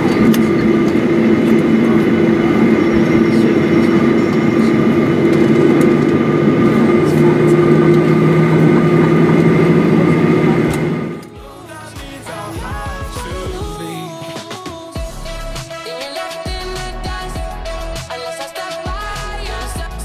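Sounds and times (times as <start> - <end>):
jet engines humming: 0.0 - 13.6.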